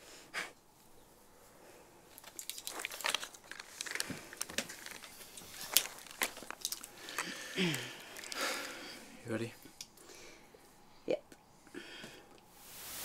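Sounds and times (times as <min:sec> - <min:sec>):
rustling of hair and clothing: 0:00.8 - 0:09.8.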